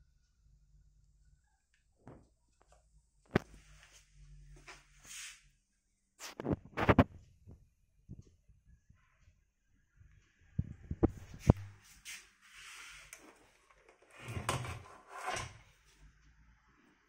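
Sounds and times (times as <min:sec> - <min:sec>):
rubbing and brushing: 0:04.7 - 0:05.4, 0:11.1 - 0:13.4.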